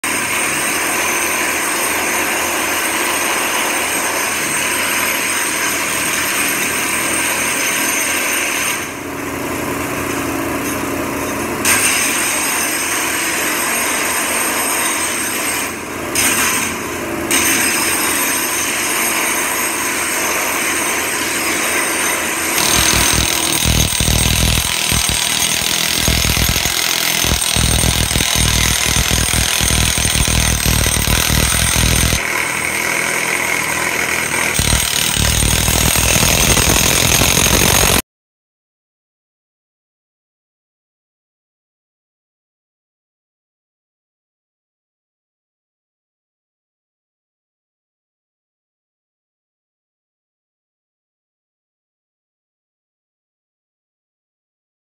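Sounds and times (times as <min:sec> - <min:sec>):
chipping hammer breaking concrete: 0:10.7 - 0:38.0.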